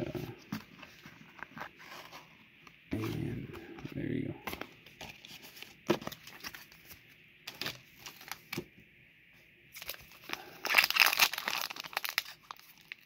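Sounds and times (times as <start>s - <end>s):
foil wrapper crinkling: 7.5s - 8.6s, 9.8s - 13.0s.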